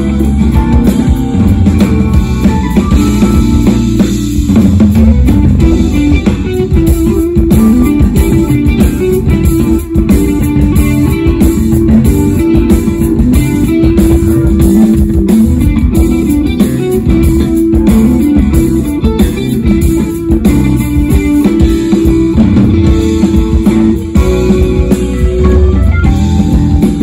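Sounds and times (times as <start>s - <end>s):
bass guitar: 0.0s - 27.0s
drum kit beat: 0.0s - 27.0s
electric guitar: 0.0s - 27.0s.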